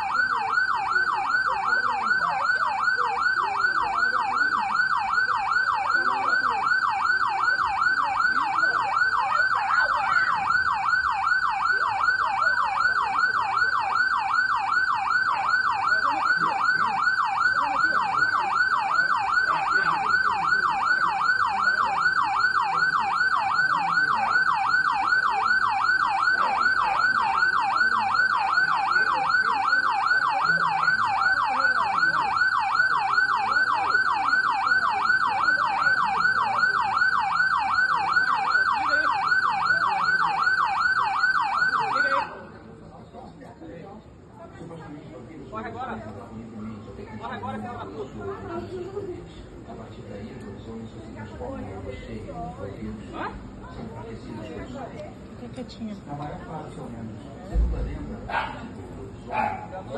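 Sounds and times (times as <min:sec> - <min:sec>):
police siren yelping: 0:00.0 - 0:42.8.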